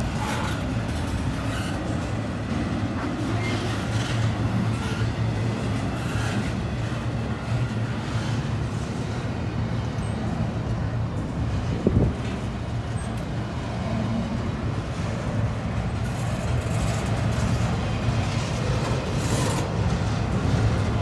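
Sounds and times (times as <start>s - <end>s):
freight train rolling past: 0.0s - 21.0s.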